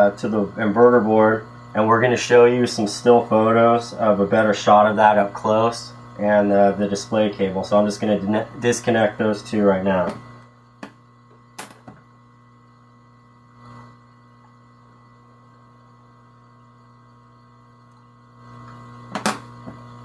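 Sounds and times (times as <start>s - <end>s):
electrical mains hum: 0.0s - 20.0s.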